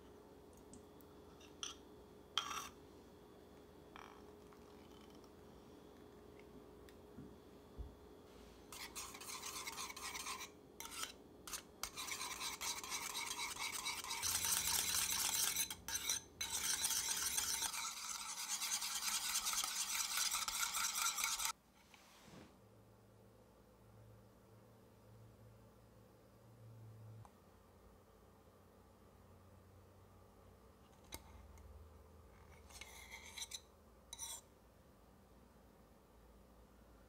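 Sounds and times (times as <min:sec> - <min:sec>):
whisk beating cream in bowl: 0:08.7 - 0:21.6.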